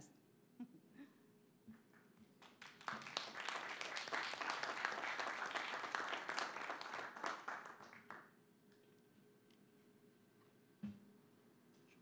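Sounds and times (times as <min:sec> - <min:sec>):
small group clapping: 0:01.9 - 0:08.4.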